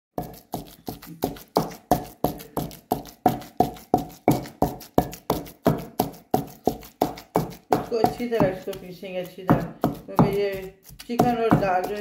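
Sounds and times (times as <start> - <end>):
pestle thudding in stone mortar: 0.2 - 12.0.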